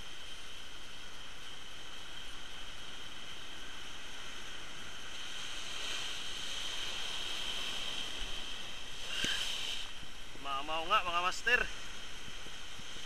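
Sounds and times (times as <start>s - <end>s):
surf breaking against rocks: 4.9s - 13.0s.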